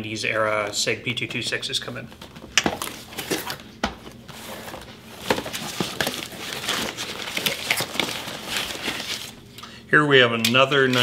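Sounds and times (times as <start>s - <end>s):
clicks and knocks of cases: 2.2s - 9.3s
packing paper crinkling: 4.3s - 9.5s.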